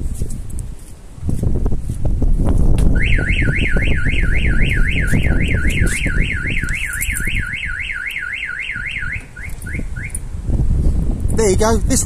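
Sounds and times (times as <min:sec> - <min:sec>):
car alarm siren whooping: 0:03.0 - 0:10.2.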